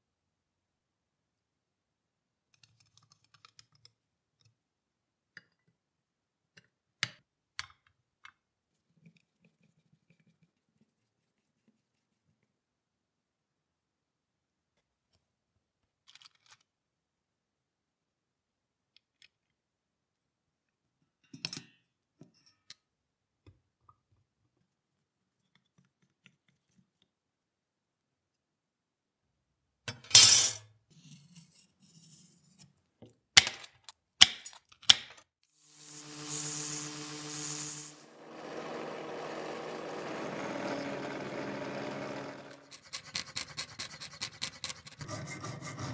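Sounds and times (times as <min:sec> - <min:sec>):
belt sander running: 0:35.6 - 0:42.9.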